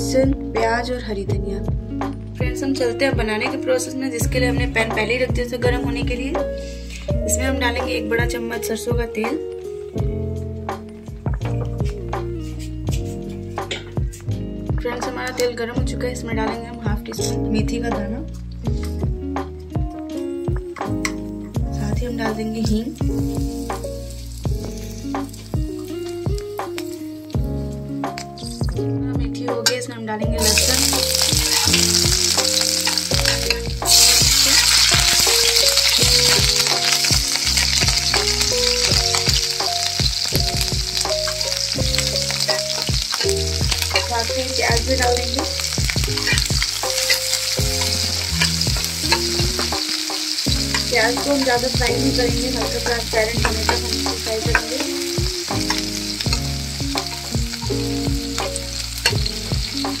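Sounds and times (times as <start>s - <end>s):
vegetables sizzling in hot oil: 22.2s - 27.5s, 30.4s - 60.0s.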